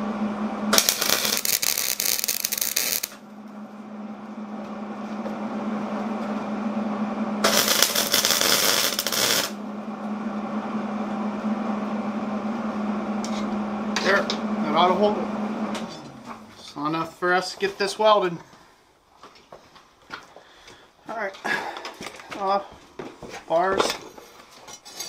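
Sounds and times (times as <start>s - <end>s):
welder steady hum: 0.0s - 18.6s
welding arc crackling: 0.7s - 3.3s, 7.4s - 9.6s.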